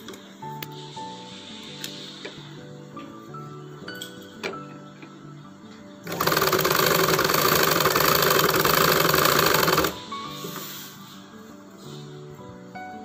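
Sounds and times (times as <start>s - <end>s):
sewing machine stitching: 6.0s - 10.0s.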